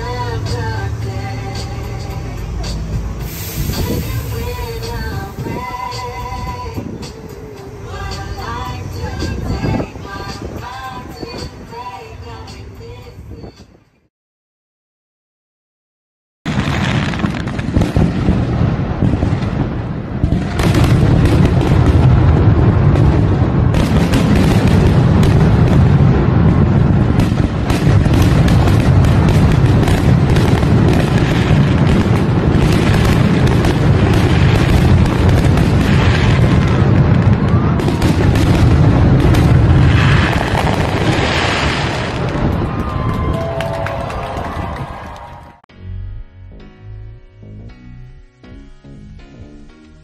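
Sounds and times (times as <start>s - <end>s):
fireworks booming and crackling: 0.0s - 8.4s, 16.5s - 45.1s.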